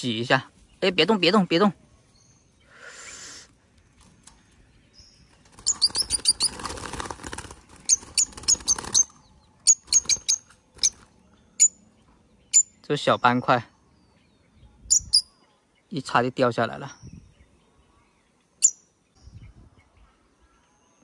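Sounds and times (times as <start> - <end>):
parrot squeaking: 5.6 - 6.6.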